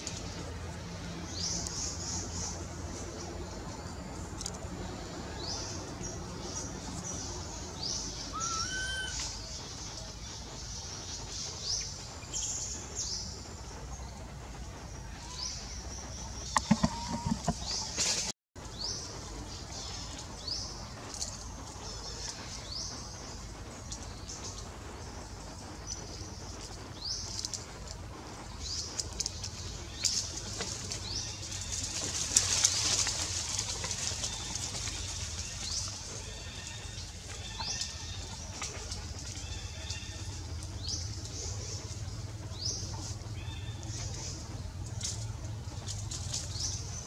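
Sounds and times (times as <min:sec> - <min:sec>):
birds chirping: 0:01.3 - 0:24.6
low bird call: 0:16.4 - 0:18.2.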